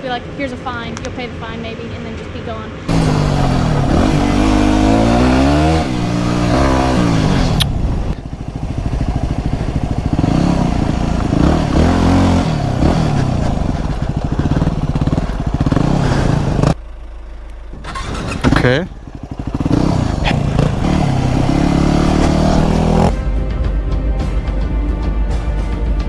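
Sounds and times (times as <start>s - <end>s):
motorcycle engine accelerating: 2.9s - 23.5s.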